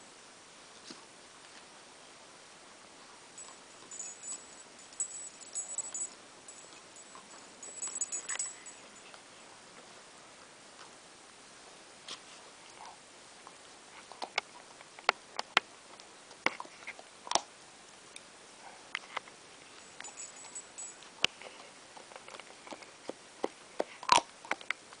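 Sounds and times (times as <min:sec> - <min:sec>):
puppy gnawing on chew bone: 0:19.8 - 0:25.0.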